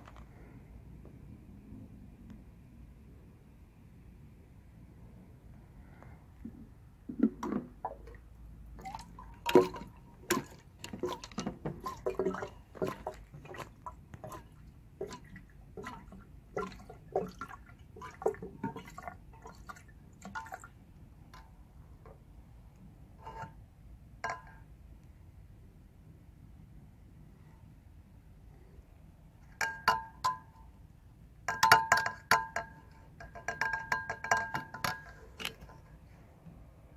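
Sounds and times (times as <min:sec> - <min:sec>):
liquid glugging from can: 0:06.5 - 0:20.8
liquid dripping: 0:07.1 - 0:21.4.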